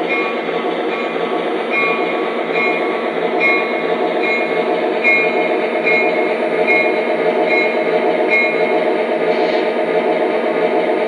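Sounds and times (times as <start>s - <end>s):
model train diesel engine sound: 0.0s - 11.0s.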